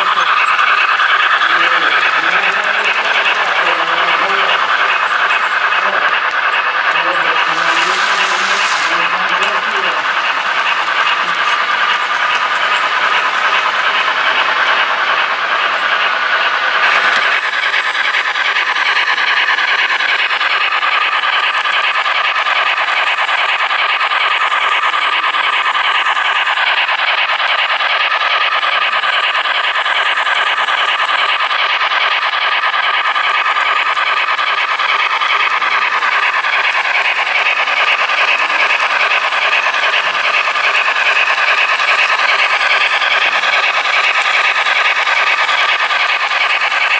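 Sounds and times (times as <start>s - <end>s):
model train rolling rattle: 0.0s - 46.9s
steam hiss: 6.8s - 14.1s.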